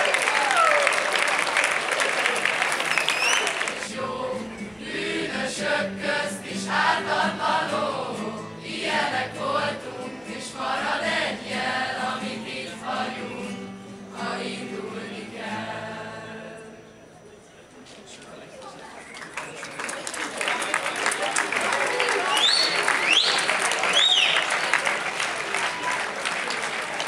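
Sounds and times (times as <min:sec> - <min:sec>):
group of young voices singing: 0:03.8 - 0:16.8
strummed acoustic guitars: 0:03.8 - 0:16.8.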